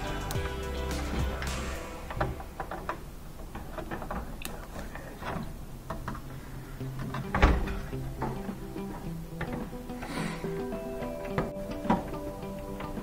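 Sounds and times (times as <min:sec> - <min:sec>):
dryer panels clicking and knocking: 0:06.9 - 0:09.8
panel thump: 0:07.3 - 0:07.9.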